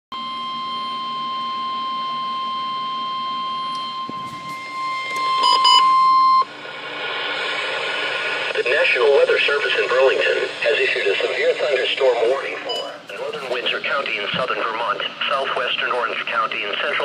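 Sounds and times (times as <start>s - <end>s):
short beeps: 0.6s - 6.5s, 12.7s - 13.0s
radio alert tone: 3.8s - 6.4s, 9.5s - 15.2s.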